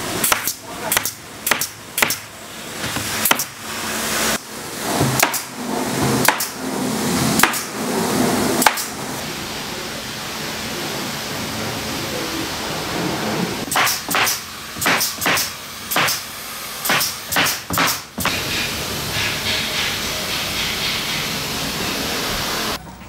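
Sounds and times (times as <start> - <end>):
steady air hiss: 0.0 - 22.8
nail gun shots: 0.2 - 2.3, 3.2 - 3.6, 5.2 - 5.5, 6.2 - 6.6, 7.4 - 7.7, 8.6 - 8.9, 13.7 - 19.9.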